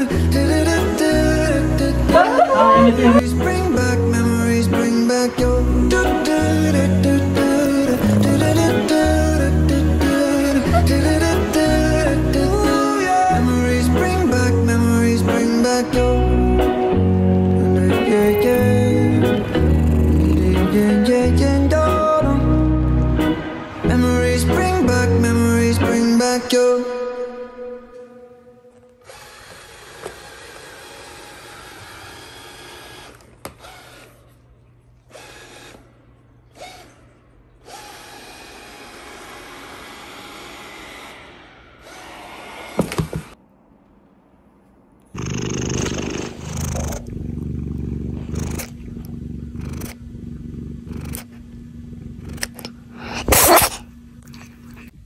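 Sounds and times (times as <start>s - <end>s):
cat purring: 19.4s - 20.9s, 45.1s - 55.0s.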